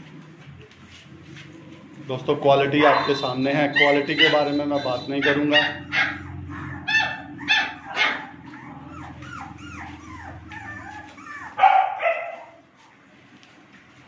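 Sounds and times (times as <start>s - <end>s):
puppies whining: 2.4s - 13.0s
puppies yipping: 2.5s - 13.0s.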